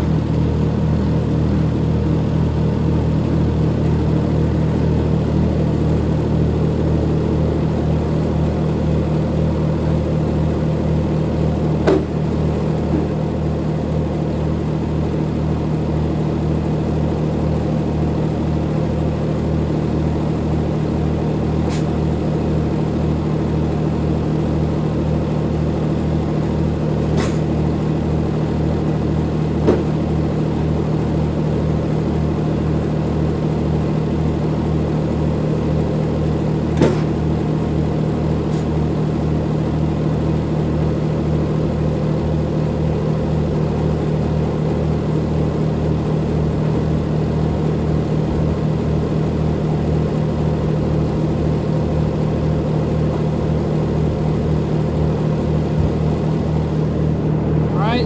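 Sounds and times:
tractor engine running: 0:00.0 - 0:58.0
sharp knocks: 0:11.8 - 0:12.2, 0:29.6 - 0:29.9, 0:36.8 - 0:37.2.

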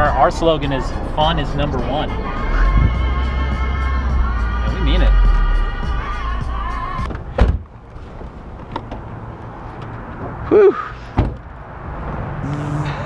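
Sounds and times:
music in a car: 0:00.0 - 0:07.2
car door thunking shut: 0:07.0 - 0:07.7, 0:11.1 - 0:11.4
person whooping: 0:10.5 - 0:11.0, 0:12.4 - 0:13.0
sharp thump: 0:11.2 - 0:11.4.

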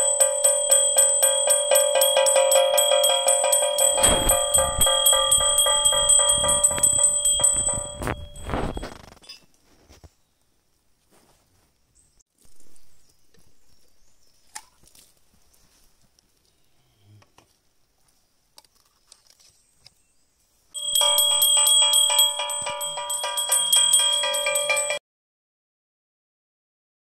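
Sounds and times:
hand bell ringing rapidly: 0:00.0 - 0:08.9, 0:20.8 - 0:25.0.

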